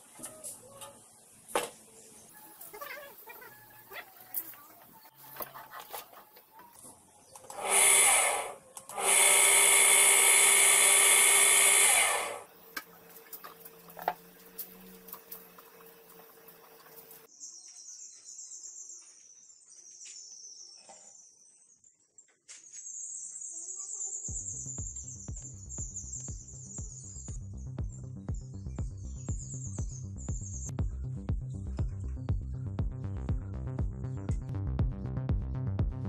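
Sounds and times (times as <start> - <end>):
power tool motor running: 7.5 - 12.5.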